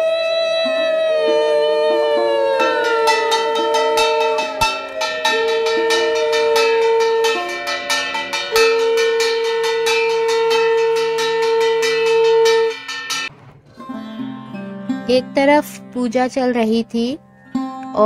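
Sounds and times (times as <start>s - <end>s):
conch shell blown: 0.0s - 13.3s
hand bell rung fast: 2.6s - 13.3s.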